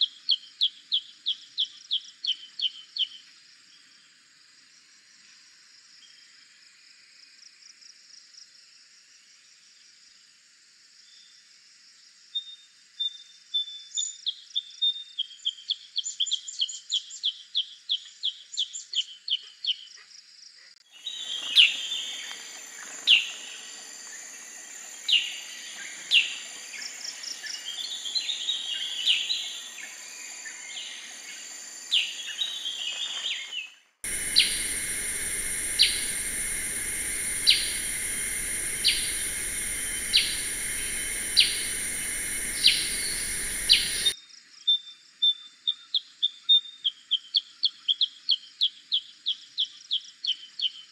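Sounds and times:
hiss: 20.9s - 33.4s, 34.0s - 44.2s
bird chirping: 20.9s - 44.2s
steady high buzz: 21.0s - 33.3s, 34.0s - 44.2s
sharp down-slurred bird notes: 34.1s - 44.1s.

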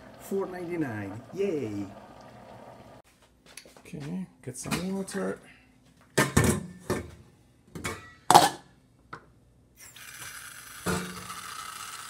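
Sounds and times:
tap water running into pot: 0.0s - 3.0s.

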